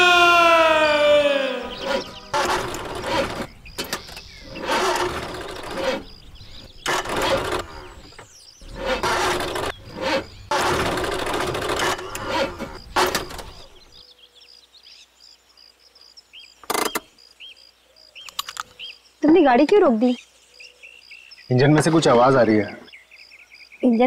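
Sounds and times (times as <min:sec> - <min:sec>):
birds chirping: 0:00.0 - 0:24.0
car engine sputtering: 0:00.8 - 0:14.0.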